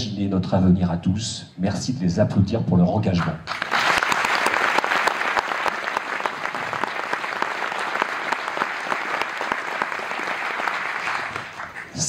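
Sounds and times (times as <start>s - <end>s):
audience applauding: 3.5s - 12.0s.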